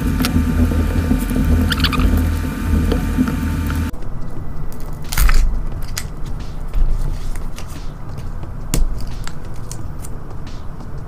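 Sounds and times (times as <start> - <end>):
steady hum: 0.0 - 11.0.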